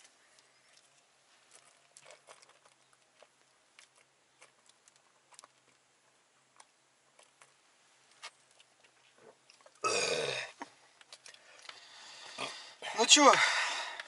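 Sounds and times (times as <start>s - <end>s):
person gulping from a bottle: 9.1s - 12.8s.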